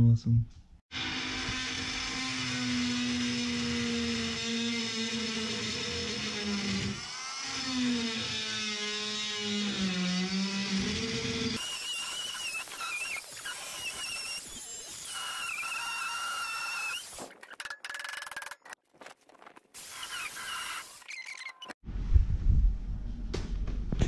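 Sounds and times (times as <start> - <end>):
multi-tool buzzing through sheet metal: 0.9 - 18.8, 19.8 - 21.8
blade squealing on metal: 20.0 - 21.8.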